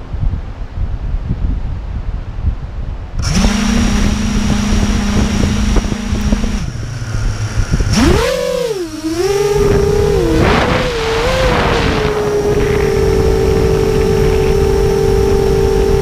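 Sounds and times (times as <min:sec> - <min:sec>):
wind on microphone: 0:00.0 - 0:16.0
drone motors whining: 0:03.2 - 0:16.0.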